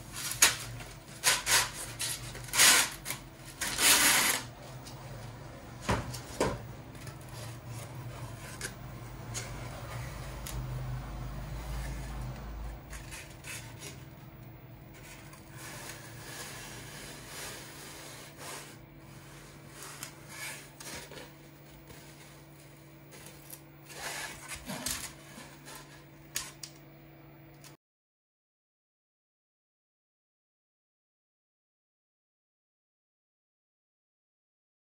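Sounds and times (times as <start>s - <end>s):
foam pieces rubbing and scraping: 0.1s - 4.5s, 12.8s - 14.1s, 14.9s - 26.1s.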